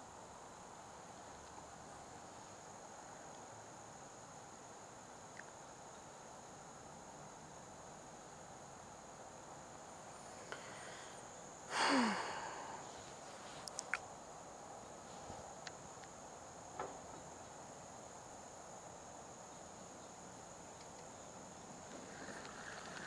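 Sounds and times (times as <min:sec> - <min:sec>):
crickets chirring: 0:00.0 - 0:23.0
faint clicks: 0:13.6 - 0:14.0, 0:20.3 - 0:21.2, 0:21.9 - 0:23.0.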